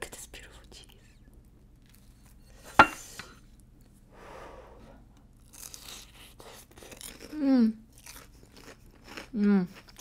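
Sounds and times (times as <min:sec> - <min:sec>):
crunching and chewing food: 0:01.4 - 0:02.4, 0:05.1 - 0:10.0.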